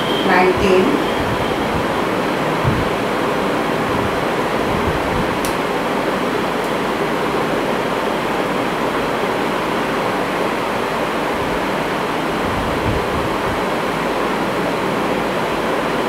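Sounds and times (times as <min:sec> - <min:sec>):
loud rushing noise: 0:00.0 - 0:09.0.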